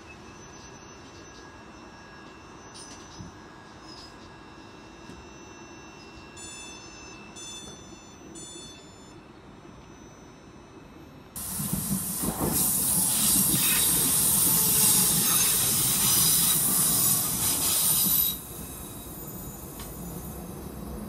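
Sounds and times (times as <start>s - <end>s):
train passing rushing hiss: 11.4s - 21.0s.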